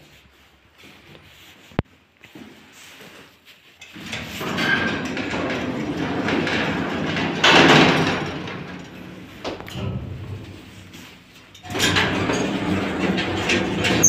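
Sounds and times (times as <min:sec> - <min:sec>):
lift doors sliding open: 0:03.9 - 0:14.0.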